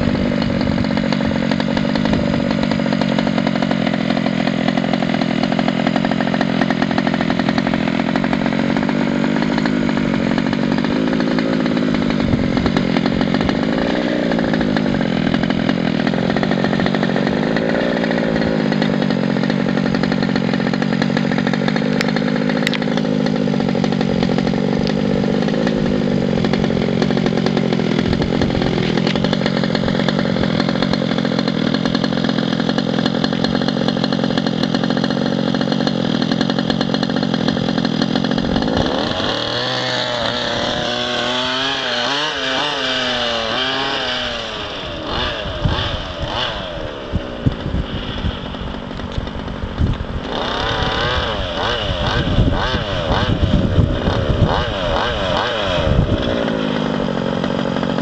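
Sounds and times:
small two-stroke engine revving: 0.0s - 58.0s.

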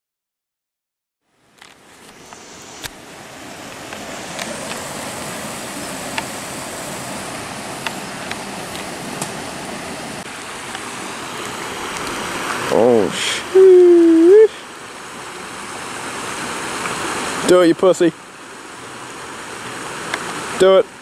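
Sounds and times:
rushing outdoor background noise: 1.2s - 21.0s.

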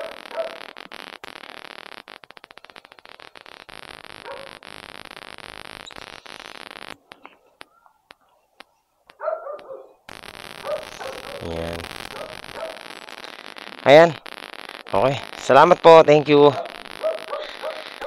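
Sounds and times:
dog barking: 0.0s - 0.6s, 4.2s - 4.6s, 9.2s - 10.0s, 10.6s - 11.4s, 12.1s - 12.8s, 16.5s - 18.0s.

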